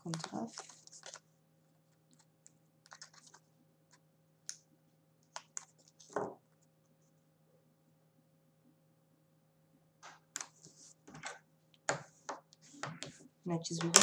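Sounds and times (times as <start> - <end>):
paper rustling: 0.0 - 3.5.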